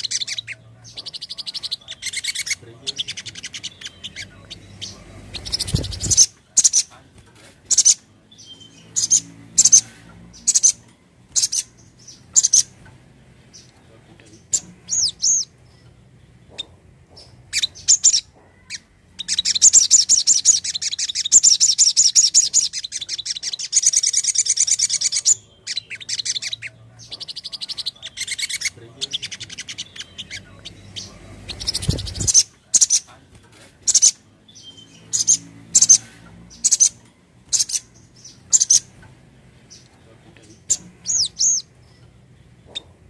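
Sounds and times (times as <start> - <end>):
bird chirping and trilling: 0.0 - 7.0, 7.6 - 33.2, 33.8 - 43.0.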